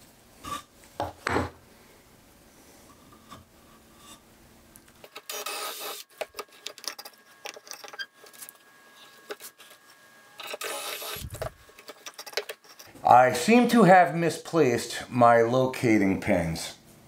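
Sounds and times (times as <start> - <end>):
cordless drill boring wood: 5.1 - 6.4, 10.4 - 11.4.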